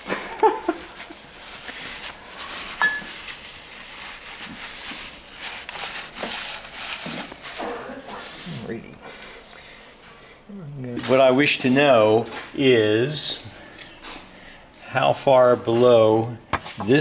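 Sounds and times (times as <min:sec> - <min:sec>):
cloth rag rubbing metal: 0:00.9 - 0:08.6.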